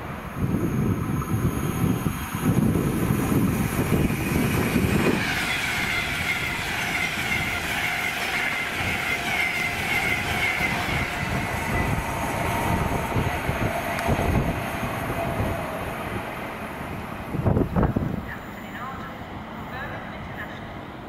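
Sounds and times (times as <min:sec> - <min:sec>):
train wheels rumbling on rails: 0:00.0 - 0:21.0
high wavering wheel squeal: 0:03.4 - 0:16.0.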